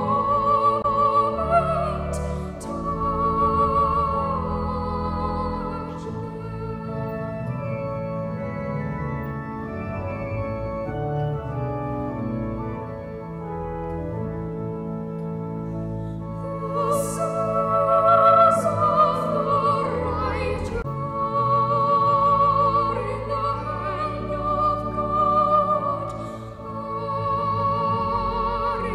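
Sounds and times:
choir singing: 0:00.0 - 0:07.8, 0:16.4 - 0:28.9
organ chords: 0:00.0 - 0:28.9.

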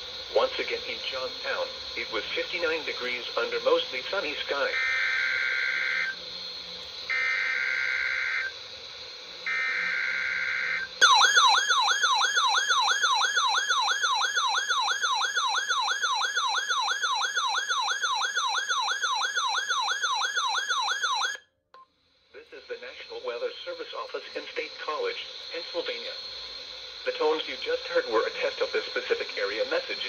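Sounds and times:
radio station hiss: 0:00.0 - 0:11.0, 0:22.3 - 0:30.0
radio data bursts: 0:00.0 - 0:11.2, 0:22.4 - 0:30.0
warbling siren alert: 0:04.5 - 0:08.6, 0:09.4 - 0:21.5.

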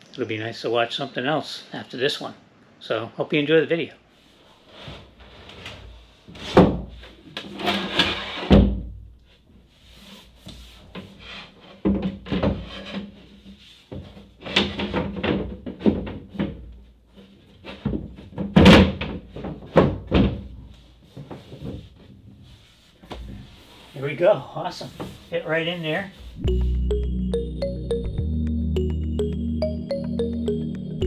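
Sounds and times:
wooden panel knocks and thunks: 0:06.5 - 0:07.0, 0:11.8 - 0:12.6, 0:13.9 - 0:16.7, 0:17.7 - 0:20.6
wooden panel scraping: 0:07.4 - 0:08.7.

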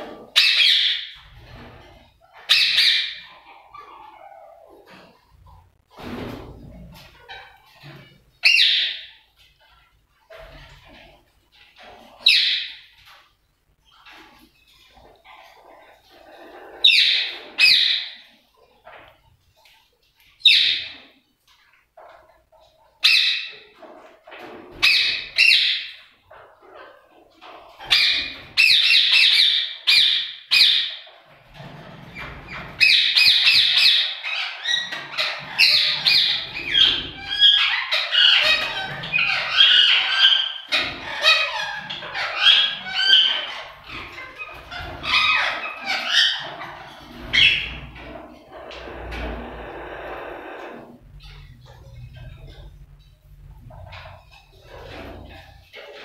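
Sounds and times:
parakeets squawking: 0:15.0 - 0:18.2, 0:32.1 - 0:53.0.

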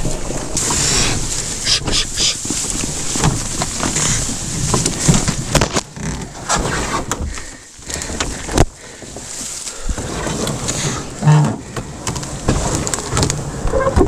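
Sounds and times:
branches rustling and scraping: 0:00.0 - 0:14.0
sharp snaps and knocks: 0:02.7 - 0:08.8.

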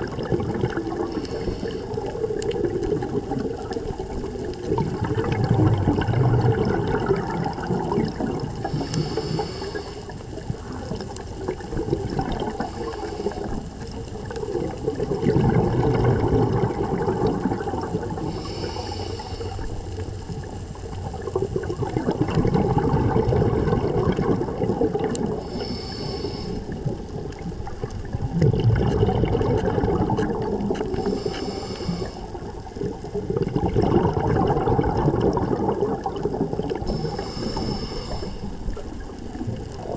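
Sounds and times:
rumble of exhaled bubbles: 0:00.0 - 0:39.9
regulator hiss on inhale: 0:00.9 - 0:02.5, 0:08.5 - 0:11.2, 0:12.4 - 0:14.8, 0:18.0 - 0:20.9, 0:25.1 - 0:27.9, 0:30.8 - 0:33.0, 0:36.8 - 0:39.7.

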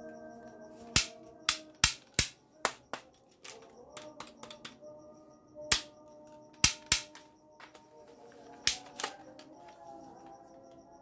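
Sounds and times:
faint background music: 0:00.0 - 0:11.0
toy rifle plastic clicks and snaps: 0:01.0 - 0:02.4, 0:06.6 - 0:07.2, 0:08.7 - 0:09.5.

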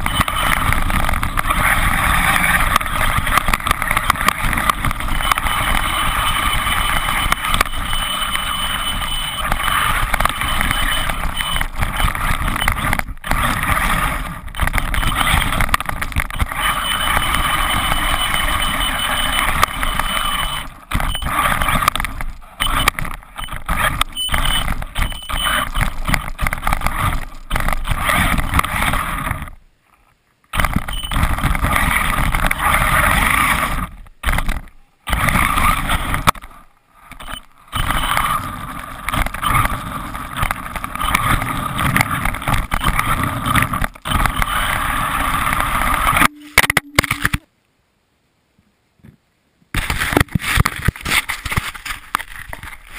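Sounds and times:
electric toy truck motor running: 0:00.0 - 0:29.4
tyres churning snow: 0:00.0 - 0:29.6, 0:30.6 - 0:34.5, 0:37.7 - 0:46.2.

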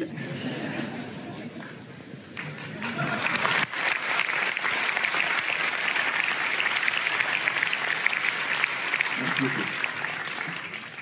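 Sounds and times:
audience applauding: 0:02.3 - 0:11.0.

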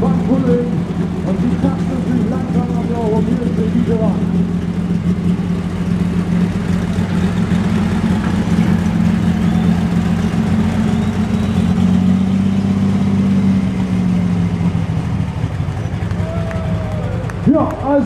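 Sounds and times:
tractor engine idling: 0:00.0 - 0:18.0.

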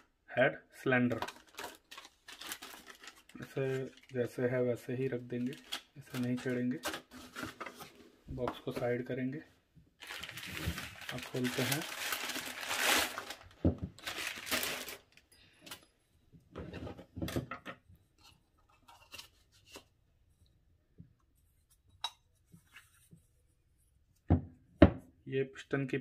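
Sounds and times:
plastic wrapping rustling and tearing: 0:01.1 - 0:04.4, 0:05.0 - 0:08.0, 0:10.0 - 0:15.8.

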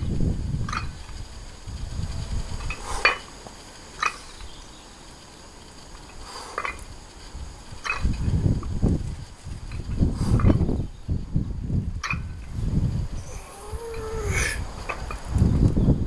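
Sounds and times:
low rumble: 0:00.0 - 0:04.9.

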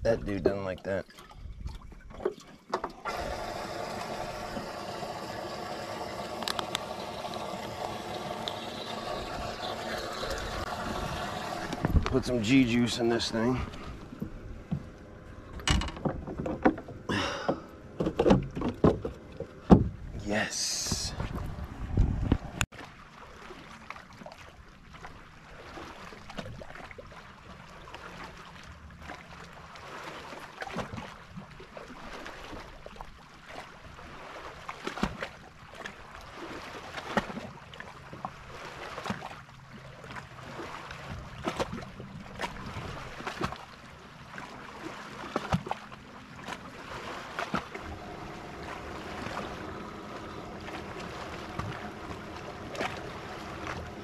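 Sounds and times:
water noise: 0:00.0 - 0:54.0
wind: 0:00.0 - 0:54.0
steady hum: 0:03.1 - 0:13.0, 0:47.6 - 0:54.0.

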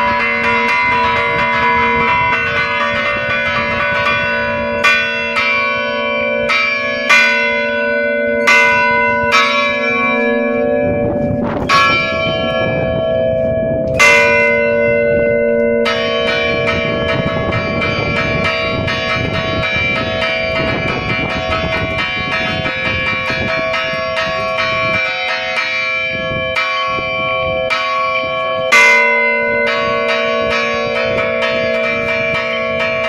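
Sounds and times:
church bells ringing: 0:00.0 - 0:33.0.

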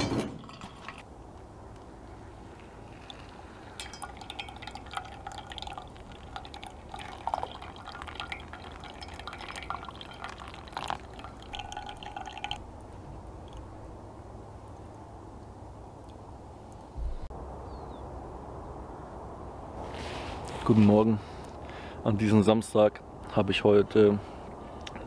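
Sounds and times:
coffee dripping: 0:02.6 - 0:13.7.

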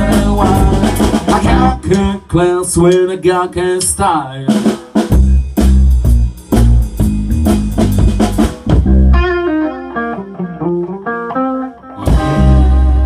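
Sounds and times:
drum hits: 0:00.0 - 0:02.2, 0:04.5 - 0:09.2
electric guitar single notes: 0:08.6 - 0:13.0.

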